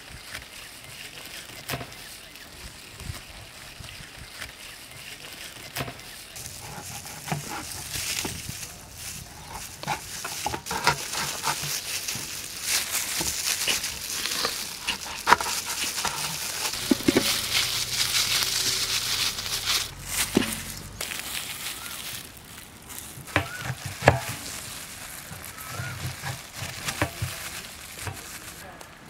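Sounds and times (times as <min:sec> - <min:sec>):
knife chopping on plastic board: 0:23.4 - 0:24.4.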